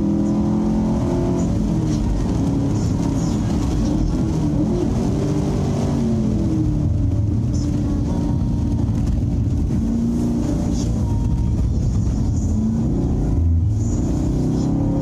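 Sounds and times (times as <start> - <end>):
car engine running hard: 0.0 - 15.0
wind noise: 1.6 - 14.9.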